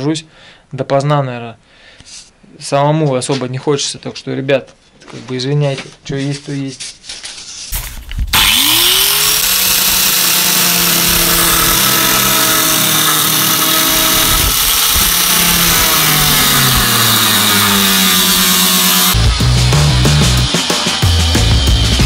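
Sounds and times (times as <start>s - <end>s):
angle grinder cutting metal: 8.3s - 22.0s.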